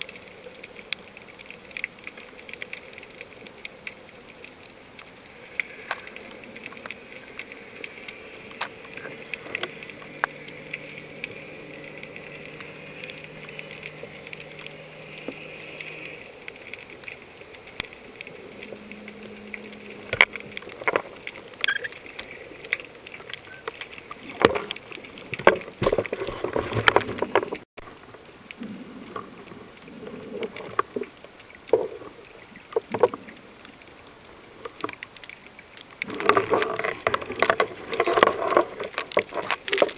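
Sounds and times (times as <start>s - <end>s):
faint steady hum: 0.0s - 39.9s
muffled underwater water wash: 0.0s - 39.9s
underwater clicks and knocks: 18.5s - 22.3s, 23.2s - 27.6s, 30.4s - 33.4s, 36.0s - 39.9s.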